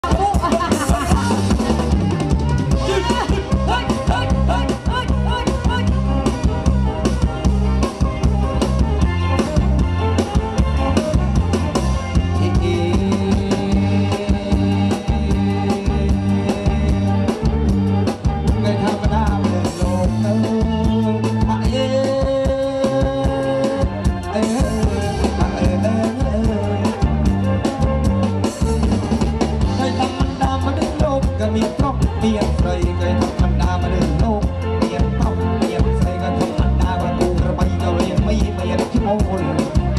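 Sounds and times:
amplified band dance music: 0.0 - 39.9.

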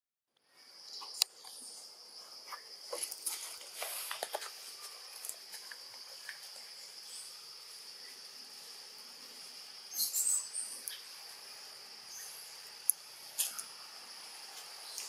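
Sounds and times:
small clicks and rustles: 2.5 - 6.6
high-pitched insect drone: 3.6 - 15.0.

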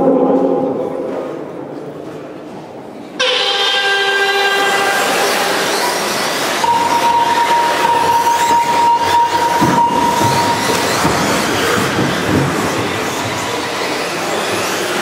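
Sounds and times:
steady high tone: 3.2 - 10.6.

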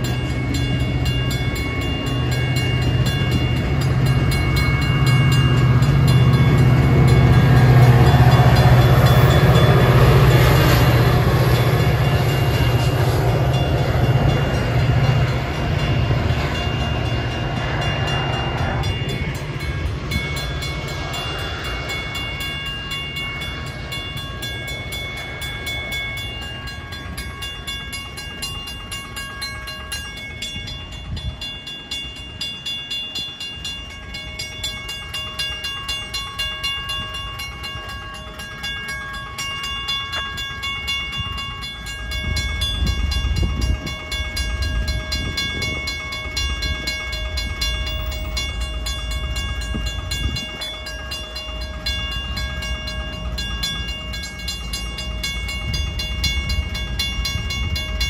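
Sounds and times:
railroad crossing bell clanging: 0.0 - 58.0.

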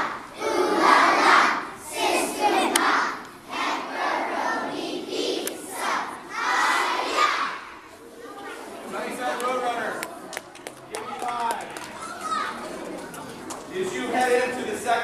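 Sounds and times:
children cheering and shouting: 12.0 - 12.7.

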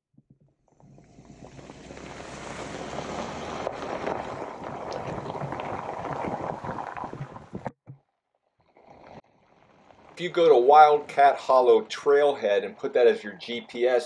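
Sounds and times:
wind on microphone: 0.9 - 7.7
tyres crunching over gravel: 1.5 - 6.6.

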